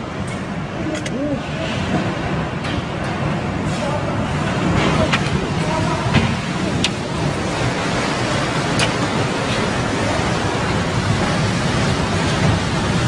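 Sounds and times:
violent wind rushing: 0:00.0 - 0:13.0.

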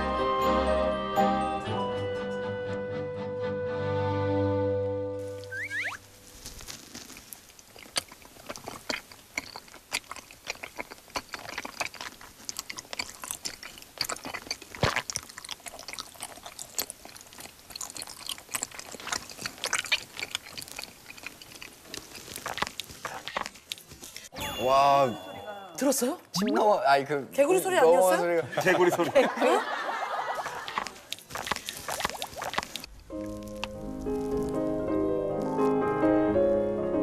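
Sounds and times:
chewing with sticky mouth clicks: 0:06.9 - 0:24.3, 0:30.4 - 0:35.8.

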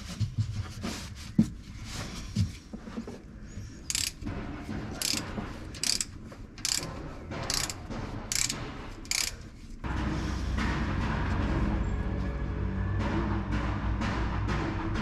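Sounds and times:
ratchet wrench clicking: 0:03.9 - 0:04.2, 0:05.0 - 0:06.9, 0:07.5 - 0:09.5.

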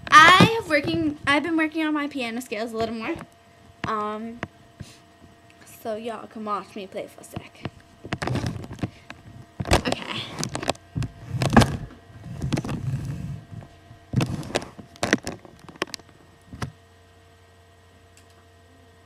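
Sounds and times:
faint steady hum: 0:00.0 - 0:19.0
camera handling knocks and rubbing: 0:08.1 - 0:09.0.

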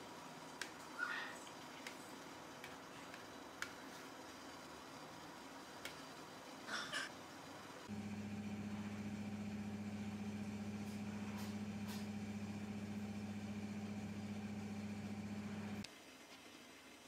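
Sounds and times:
steady low hum: 0:07.8 - 0:15.9.

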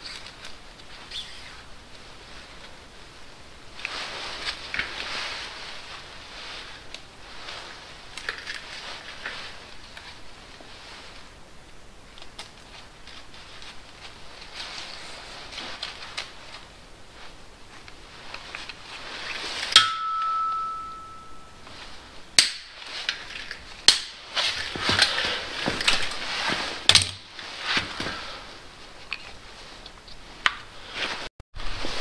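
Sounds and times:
rustling of tools: 0:03.8 - 0:11.4, 0:12.0 - 0:32.0
metal clink ringing: 0:19.8 - 0:21.6.

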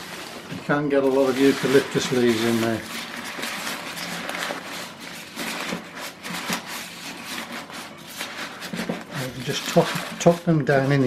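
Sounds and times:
leaves rustling: 0:00.0 - 0:11.0.

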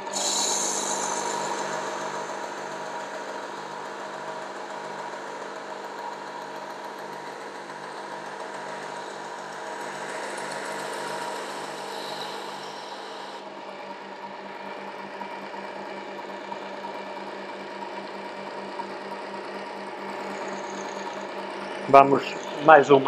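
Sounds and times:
knife sharpener motor whine: 0:00.0 - 0:04.7, 0:08.7 - 0:14.0, 0:19.5 - 0:23.0.

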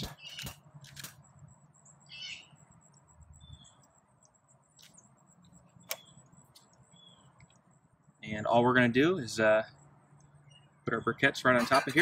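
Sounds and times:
faint bird chirps: 0:00.0 - 0:00.7, 0:01.3 - 0:11.6
sharp clicks: 0:00.0 - 0:01.3, 0:02.9 - 0:07.7.

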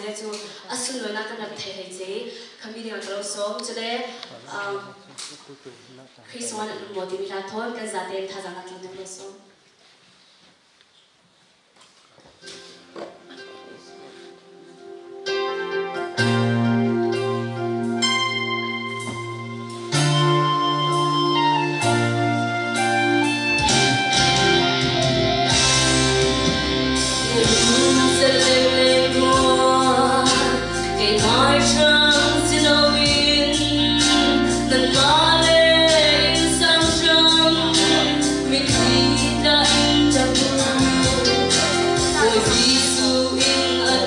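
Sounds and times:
backing music with steady beat: 0:12.4 - 0:44.0
woman singing into microphone: 0:27.2 - 0:44.0.

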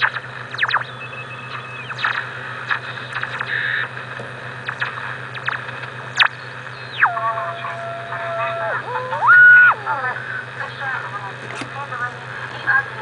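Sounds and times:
radio whistle tone: 0:00.0 - 0:04.0, 0:04.6 - 0:10.9
low steady hum: 0:00.0 - 0:13.0
radio static hiss and crackle: 0:00.0 - 0:13.0
warbling radio signals: 0:00.0 - 0:13.0.

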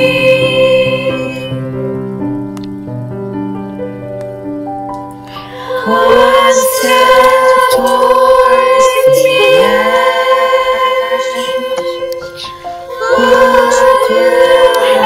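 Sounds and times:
children's chorus singing: 0:00.0 - 0:01.5, 0:05.5 - 0:15.0.

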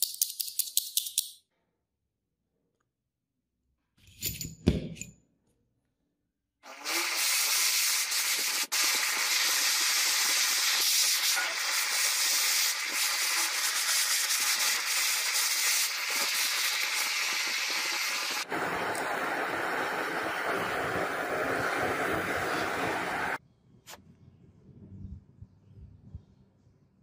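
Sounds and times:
butane torch hissing: 0:06.6 - 0:23.4.

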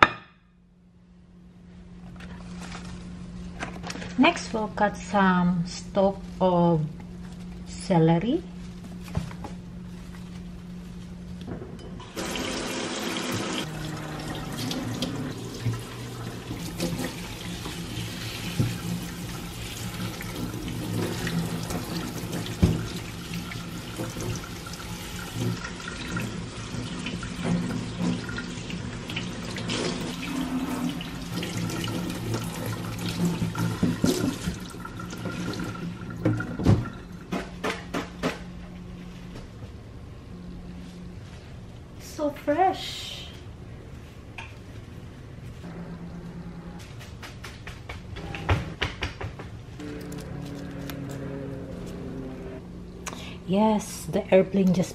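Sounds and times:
tap water running into metal sink: 0:12.1 - 0:37.0.

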